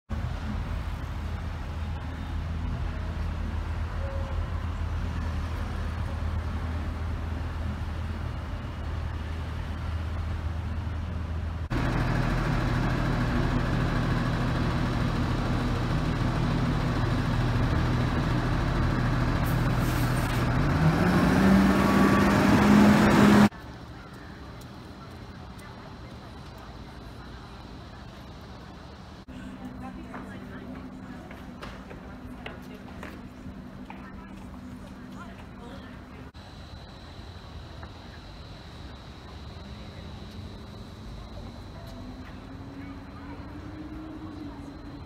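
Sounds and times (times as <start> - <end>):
engine running with low hum: 0.1 - 45.0
engine revving: 11.6 - 23.5.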